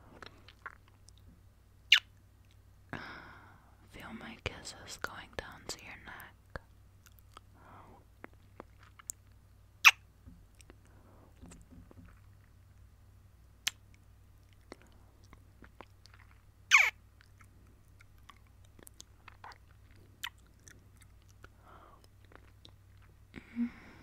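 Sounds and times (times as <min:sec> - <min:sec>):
kissing lip smacks: 0:01.9 - 0:02.1, 0:09.8 - 0:10.0, 0:13.6 - 0:13.9, 0:14.6 - 0:17.5, 0:20.2 - 0:20.4.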